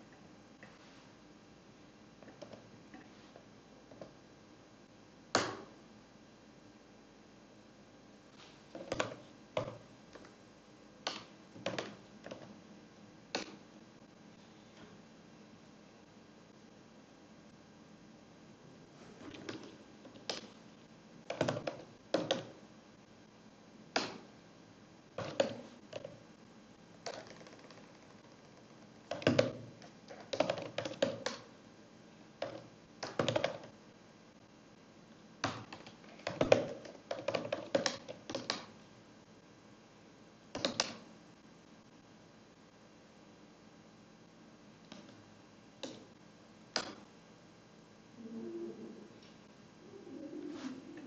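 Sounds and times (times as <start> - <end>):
keyboard typing: 21.3 - 22.5, 27.0 - 31.4, 35.4 - 38.7.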